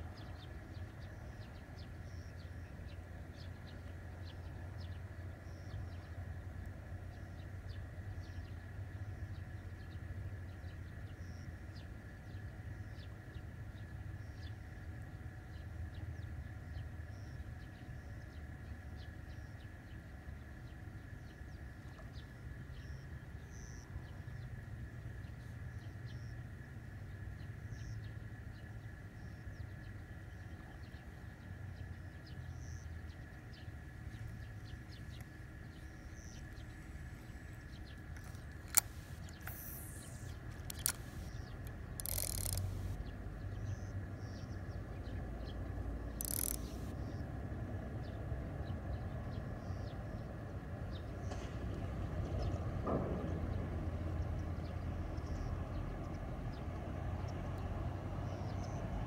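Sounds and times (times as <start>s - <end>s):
bird chirps: 32.1s - 47.3s
sharp click: 38.1s - 43.0s, 46.2s - 47.0s.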